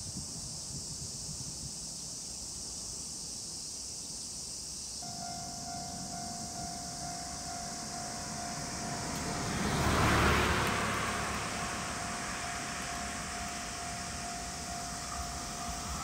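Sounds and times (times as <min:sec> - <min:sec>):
insects droning: 0:00.0 - 0:16.0
faint steady tone: 0:00.1 - 0:16.0
vehicle passing by: 0:05.1 - 0:16.0.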